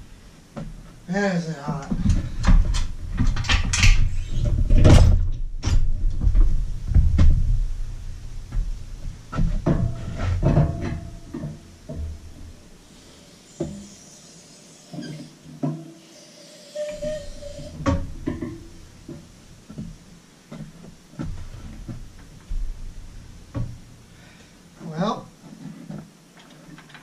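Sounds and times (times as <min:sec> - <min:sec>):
metal clunks and knocks: 0:08.5 - 0:12.6, 0:17.8 - 0:22.8.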